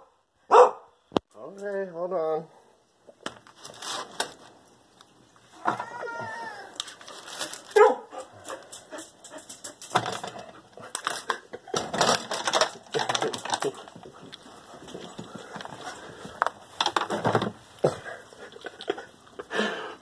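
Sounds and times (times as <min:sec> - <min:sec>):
dog barking: 0:00.5 - 0:01.0, 0:07.8 - 0:08.2
dog whining: 0:05.6 - 0:06.8.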